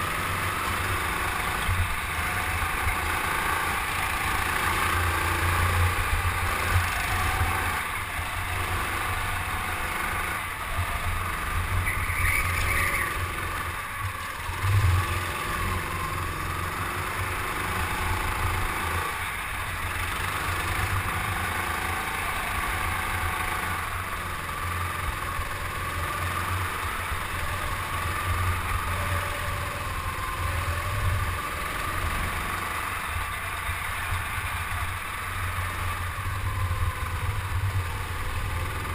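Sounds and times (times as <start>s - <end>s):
go-kart motor running: 0.0s - 38.9s
high squeal: 10.9s - 13.6s.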